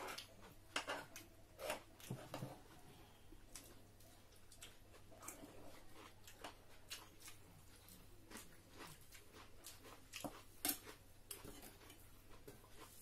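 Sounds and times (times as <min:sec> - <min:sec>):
chewing: 0:03.5 - 0:13.0.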